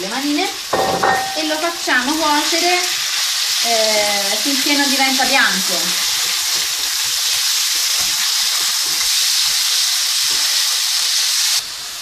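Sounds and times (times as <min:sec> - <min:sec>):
chicken sizzling in hot oil: 0:00.0 - 0:12.0
spatula scraping and tapping: 0:06.1 - 0:10.6.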